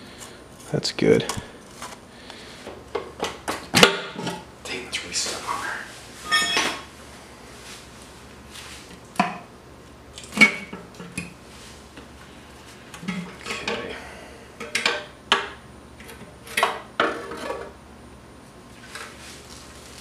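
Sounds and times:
metal scraping: 6.2s - 6.8s.

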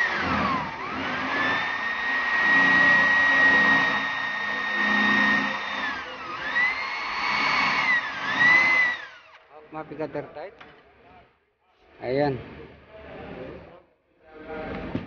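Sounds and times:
electric drill motor whine: 0.0s - 9.4s.

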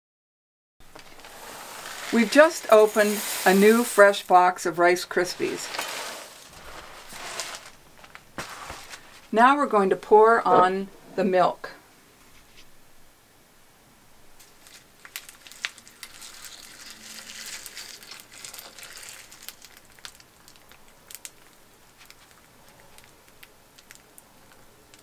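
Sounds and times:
puffed rice crackling: 0.8s - 9.4s, 14.4s - 25.0s
milk pouring: 0.9s - 4.3s, 14.7s - 21.5s.

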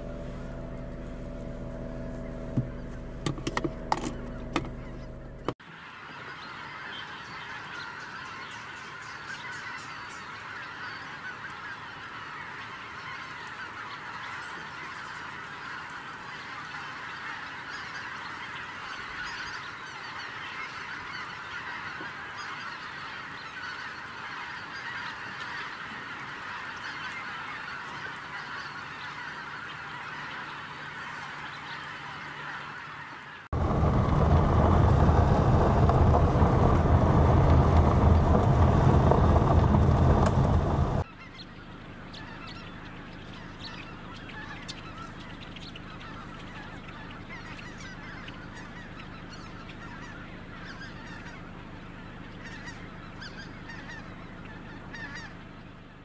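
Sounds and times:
loud low rumbling rush: 0.0s - 5.5s, 33.5s - 41.0s
geese honking: 0.0s - 56.0s.

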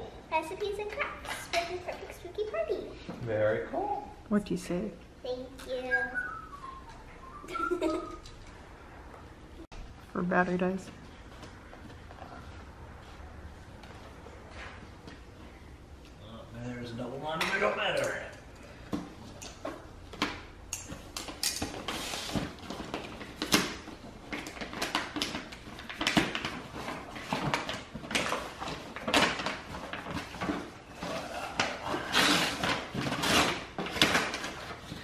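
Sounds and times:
packing paper rustling: 21.7s - 35.0s.

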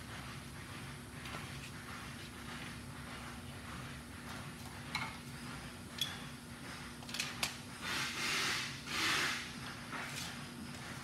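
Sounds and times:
steady low hum: 0.0s - 11.0s
tools clicking on concrete: 6.0s - 6.2s, 7.0s - 7.6s.

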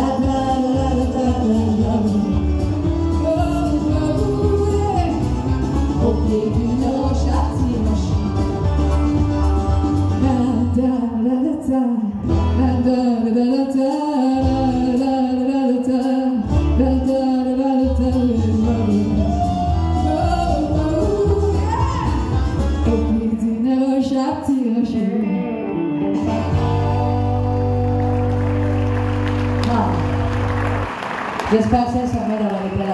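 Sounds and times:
woman singing into microphone: 0.0s - 8.5s, 10.0s - 25.6s
instrumental accompaniment: 0.0s - 10.6s.

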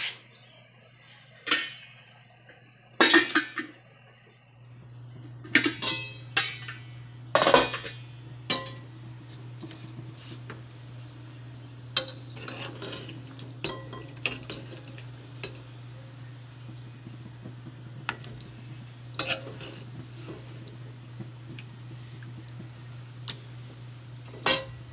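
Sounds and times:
steady low hum: 0.2s - 24.9s
metal ladle clinking on pot: 24.4s - 24.8s.

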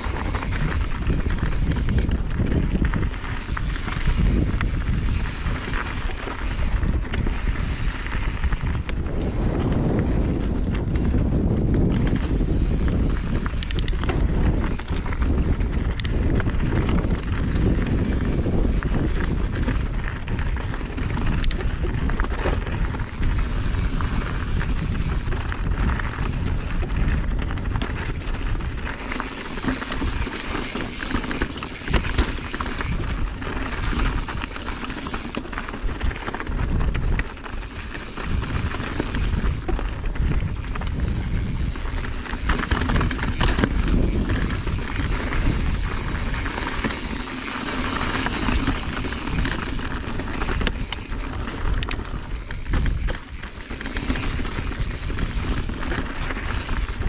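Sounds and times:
bike rattling: 0.0s - 57.0s
wind buffeting microphone: 0.0s - 57.0s
tyres crunching on gravel: 11.2s - 57.0s.

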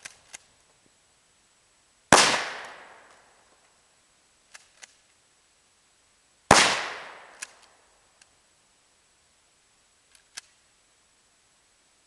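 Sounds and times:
shotgun shot with echo: 2.1s - 3.1s, 6.5s - 7.5s
faint sharp clicks: 7.3s - 8.3s, 10.1s - 10.6s.

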